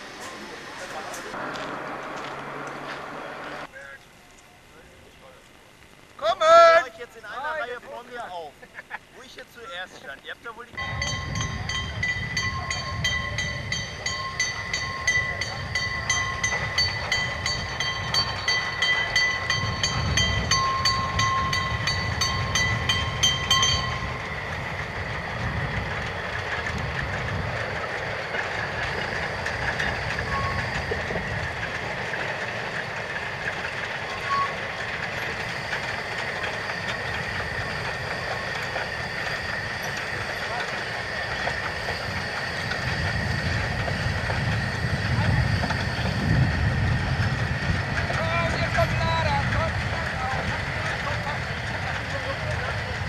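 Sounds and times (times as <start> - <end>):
steam train rumbling past: 0.0 - 4.0, 9.1 - 53.0
level crossing bell ringing: 10.8 - 24.3.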